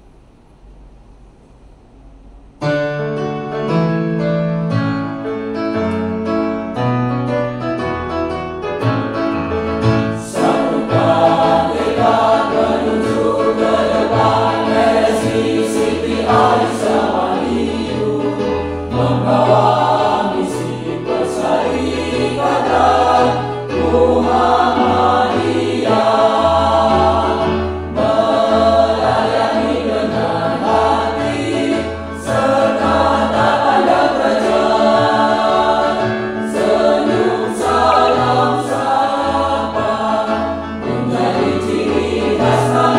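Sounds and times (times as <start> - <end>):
electronic keyboard accompaniment: 2.6 - 42.9
mixed choir singing: 10.2 - 42.9.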